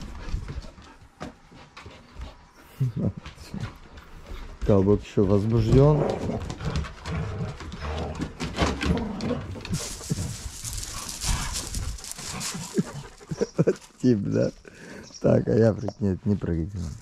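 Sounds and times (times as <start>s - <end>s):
dogs scuffling: 0.0s - 14.6s
dogs crying: 8.8s - 14.0s
hissing rustle: 9.6s - 14.6s.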